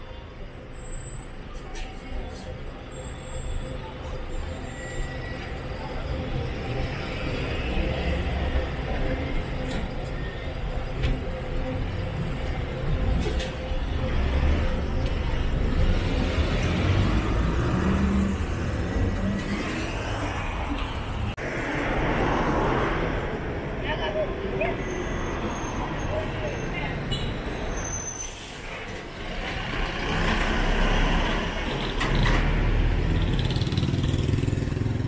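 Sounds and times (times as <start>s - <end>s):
bus diesel engine rumbling: 0.0s - 22.2s, 23.0s - 35.0s
street traffic: 0.0s - 35.0s.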